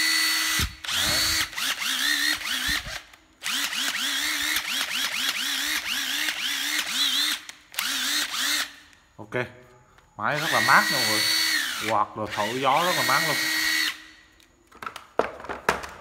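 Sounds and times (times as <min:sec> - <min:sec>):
impact driver motor pulses: 0:00.0 - 0:08.7.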